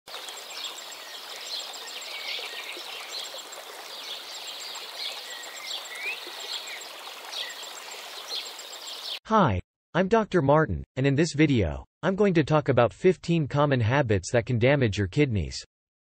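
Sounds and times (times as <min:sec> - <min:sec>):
birds chirping: 0:00.1 - 0:09.2.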